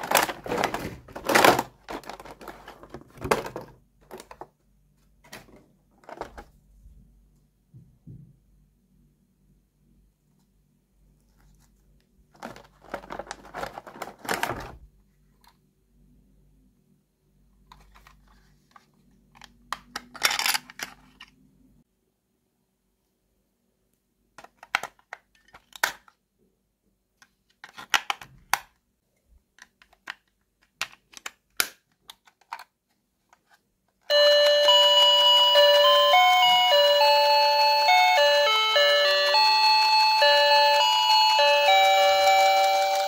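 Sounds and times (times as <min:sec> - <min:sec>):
toy beeping melody: 0:34.1 - 0:43.0.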